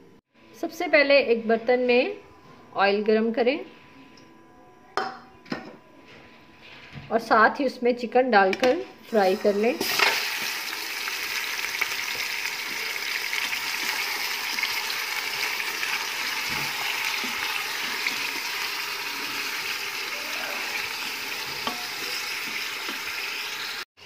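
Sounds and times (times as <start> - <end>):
chicken sizzling in hot oil: 9.1 - 23.9.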